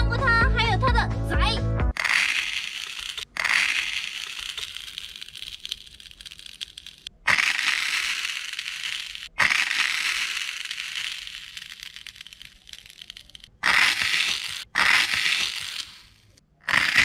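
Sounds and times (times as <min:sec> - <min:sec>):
snail eggs crackling and popping: 0:02.0 - 0:17.0.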